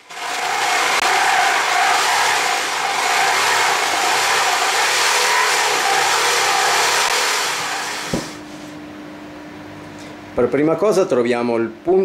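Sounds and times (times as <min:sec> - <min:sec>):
single knock: 0:08.1 - 0:08.4.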